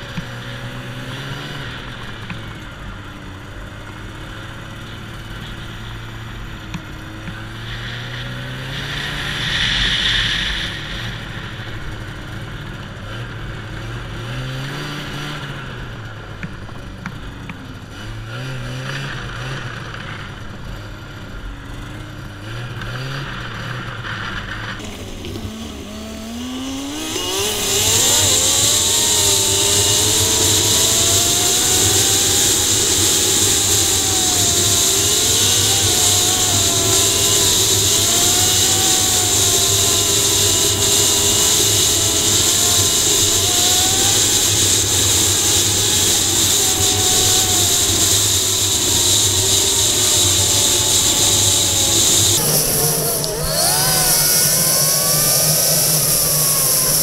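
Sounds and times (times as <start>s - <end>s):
snowmobile engine running: 0.0s - 57.0s
steady high hiss: 7.1s - 12.7s.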